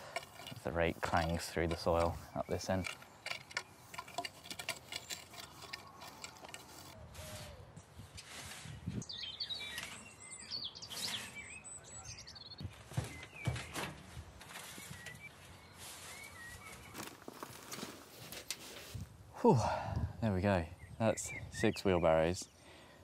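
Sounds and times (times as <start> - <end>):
metal rake clinking on stones: 0.0 - 7.0
birds chirping: 0.0 - 18.1, 20.2 - 23.0.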